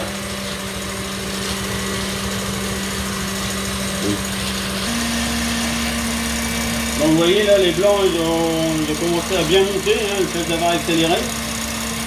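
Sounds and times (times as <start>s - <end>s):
stand mixer motor hum: 0.0s - 12.0s.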